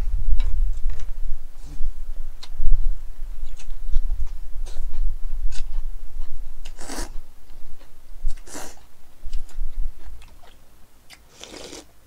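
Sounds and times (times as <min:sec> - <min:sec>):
wet chewing: 0:03.4 - 0:11.9
person slurping noodles: 0:11.3 - 0:11.9.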